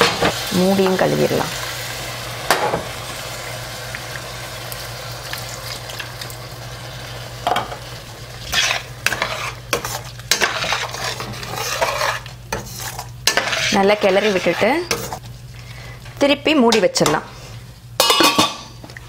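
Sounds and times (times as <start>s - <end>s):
food sizzling in a pan: 0.0s - 15.2s
spoon stirring and scraping: 8.4s - 15.3s.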